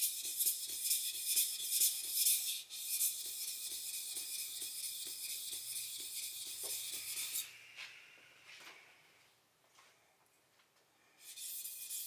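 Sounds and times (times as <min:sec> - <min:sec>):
knife scraping on whetstone: 0:00.0 - 0:07.5, 0:11.2 - 0:12.0.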